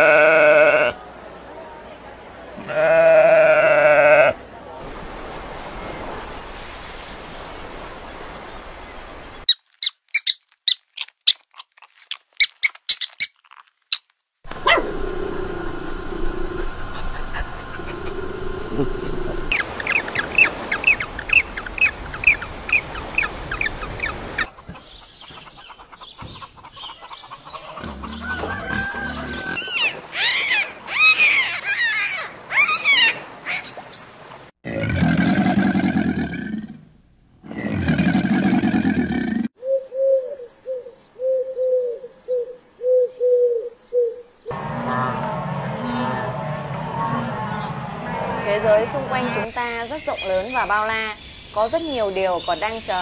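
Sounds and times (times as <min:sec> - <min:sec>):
dolphins whistling: 0:14.5 - 0:24.5, 0:27.8 - 0:33.6.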